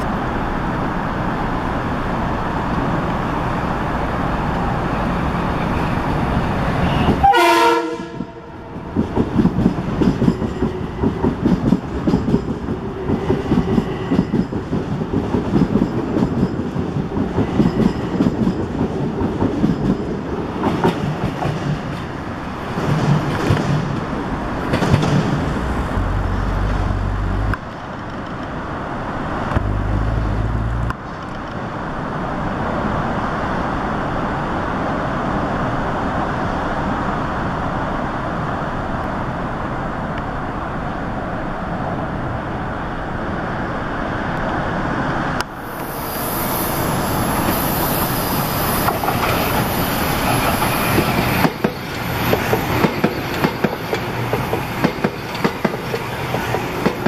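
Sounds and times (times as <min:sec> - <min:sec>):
train wheels on rails: 0:00.0 - 0:40.4, 0:44.0 - 0:57.0
deep rumble: 0:24.6 - 0:27.8, 0:29.5 - 0:31.0.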